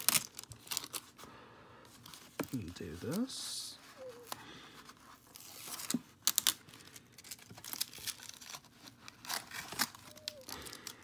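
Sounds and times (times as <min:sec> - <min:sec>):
cardboard and paper rustling: 0:01.9 - 0:11.0.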